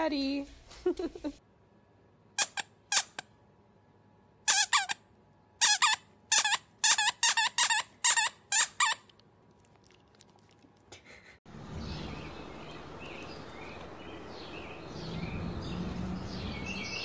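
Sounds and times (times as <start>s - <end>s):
dog chewing squeaky toy: 4.5s - 5.0s, 5.6s - 9.1s.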